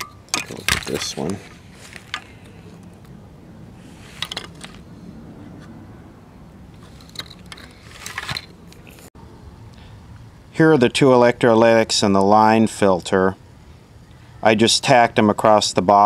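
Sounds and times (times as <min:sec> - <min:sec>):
clicks and scrapes of lamp parts: 0:00.0 - 0:03.1, 0:04.0 - 0:04.8, 0:06.8 - 0:09.1
low steady hum: 0:00.0 - 0:16.0.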